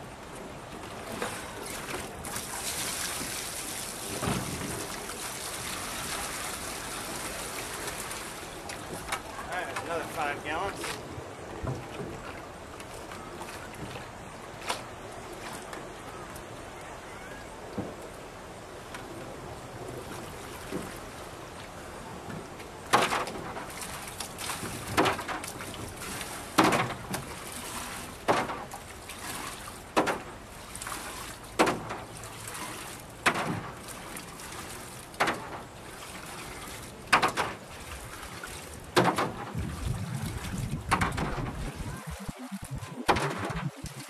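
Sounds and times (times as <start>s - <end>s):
water scooped and splashed: 1.1s - 10.2s, 23.0s - 44.0s.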